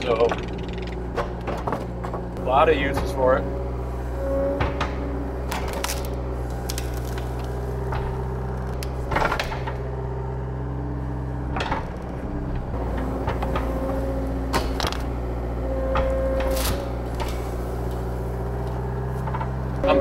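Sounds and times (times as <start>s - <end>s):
diesel engine running under load: 0.0s - 20.0s
sharp clunks of wood and metal: 12.9s - 15.2s.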